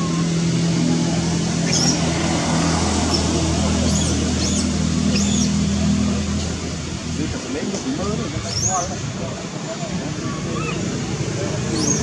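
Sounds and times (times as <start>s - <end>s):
low engine-like hum: 0.0s - 12.0s.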